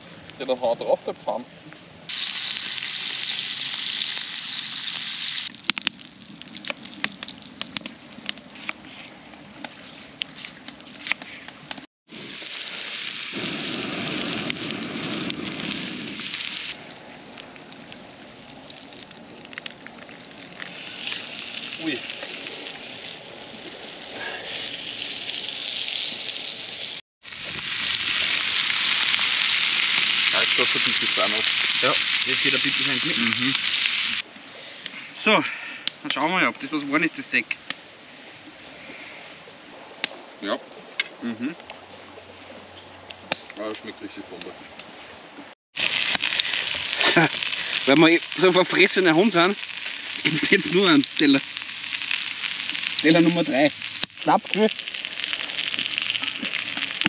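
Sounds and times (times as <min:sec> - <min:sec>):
food sizzling in a pan: 0:02.1 - 0:05.5, 0:12.1 - 0:16.8, 0:20.5 - 0:34.2, 0:45.8 - 0:57.0
sharp pops and crackles: 0:02.1 - 0:26.6, 0:27.3 - 0:35.0, 0:35.8 - 0:36.3, 0:37.5 - 0:37.9, 0:40.0 - 0:40.2, 0:41.0 - 0:41.8, 0:43.0 - 0:45.0, 0:45.8 - 0:57.0.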